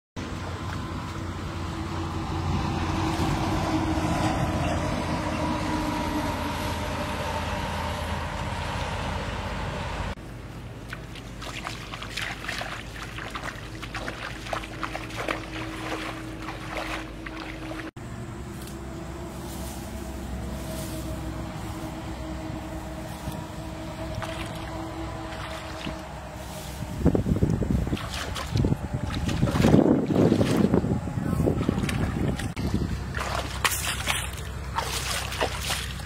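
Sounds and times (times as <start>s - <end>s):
rushing noise with low hum: 0.2s - 36.0s
feet wading through water: 10.6s - 18.0s, 22.7s - 36.0s.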